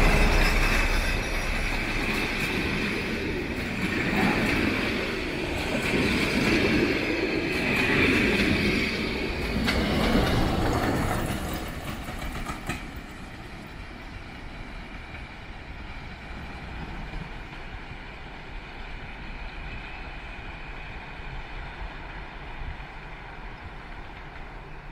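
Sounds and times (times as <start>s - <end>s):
train wheels rumbling: 0.0s - 24.9s.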